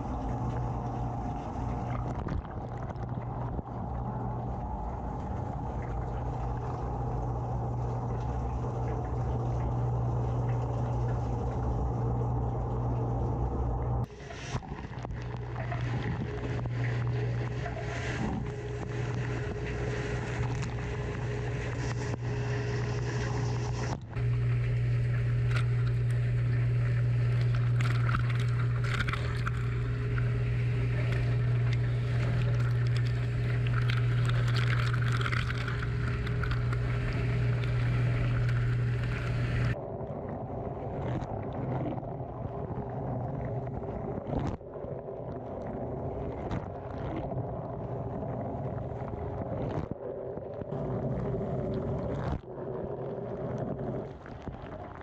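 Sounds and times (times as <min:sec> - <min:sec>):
pump humming: 0:00.0 - 0:55.0
water spraying and splashing: 0:14.1 - 0:39.8
water ticking on housing: 0:23.9 - 0:39.8.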